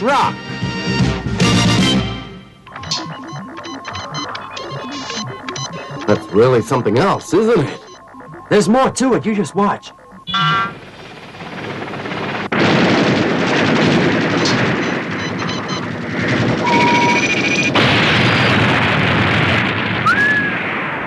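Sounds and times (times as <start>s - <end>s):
short electronic tones: 2.7s - 10.8s, 16.6s - 18.5s
explosions and gunfire: 10.7s - 21.0s.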